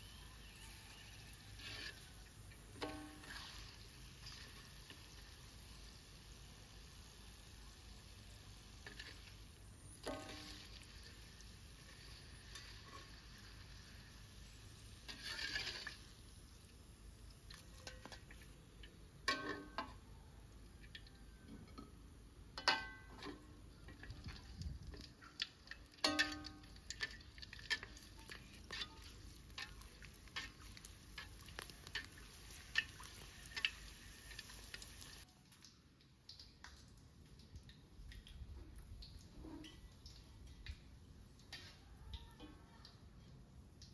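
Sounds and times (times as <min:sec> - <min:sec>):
crackers sizzling in hot oil: 0:00.0 - 0:43.9
metal spatula clinking on wok: 0:19.3 - 0:20.0, 0:22.6 - 0:23.5, 0:26.0 - 0:30.5.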